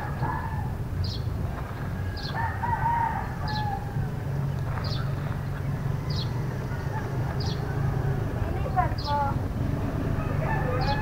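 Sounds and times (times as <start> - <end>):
rooster crowing: 2.0 - 4.2, 5.9 - 8.2, 10.1 - 11.0.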